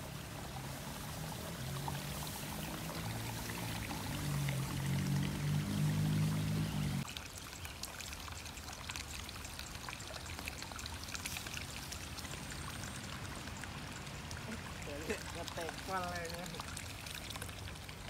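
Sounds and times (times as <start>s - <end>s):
flowing water trickling: 0.0s - 18.0s
small splashy ticks: 7.0s - 18.0s.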